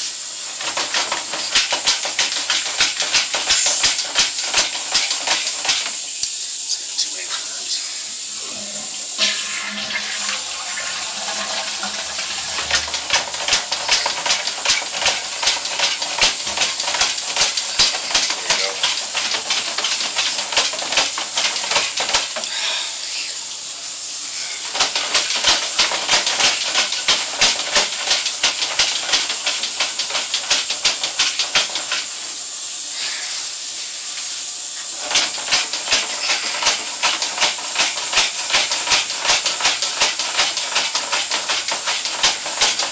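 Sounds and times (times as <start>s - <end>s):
steady hiss: 0.0s - 42.6s
cable clicking and rattling in pipe: 0.5s - 6.0s, 11.2s - 22.5s, 24.7s - 32.1s, 35.0s - 42.9s.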